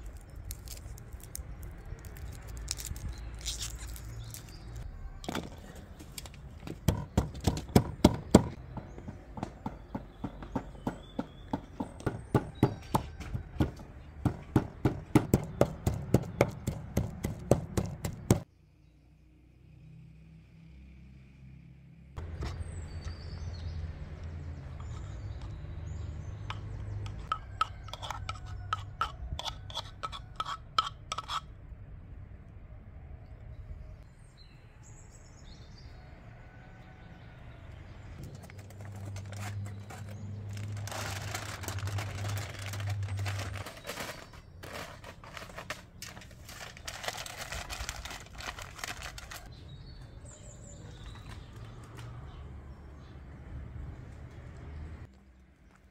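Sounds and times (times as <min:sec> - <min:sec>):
pestle pounding in wooden mortar: 0:06.7 - 0:18.4
spoon tapping and scraping: 0:26.5 - 0:31.5.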